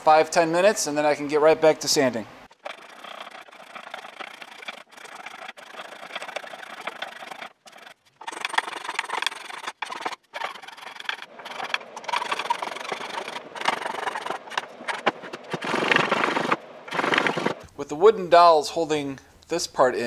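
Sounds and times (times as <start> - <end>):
hand saw cutting wood: 2.5 - 17.7.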